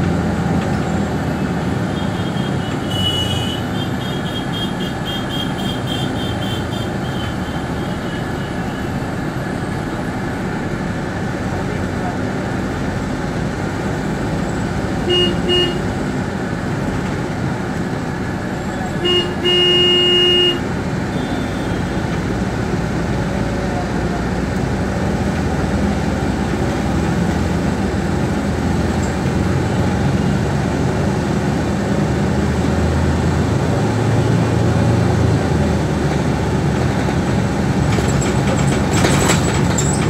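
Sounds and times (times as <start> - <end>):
bus engine and road noise: 0.0 - 40.0
vehicle horn tooting: 1.9 - 9.0, 15.0 - 15.9, 18.8 - 22.0.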